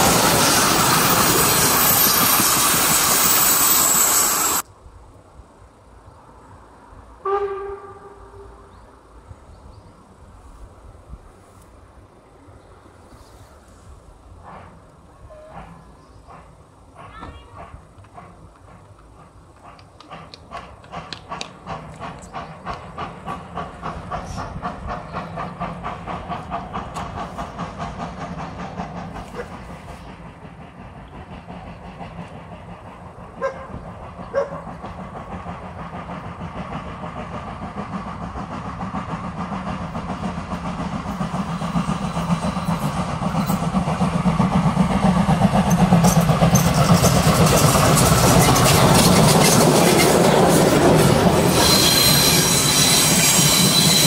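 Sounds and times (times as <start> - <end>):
steam locomotive exhaust beats: 0.0 - 4.7, 13.5 - 54.0
steam whistle toots: 7.2 - 8.6, 51.5 - 54.0.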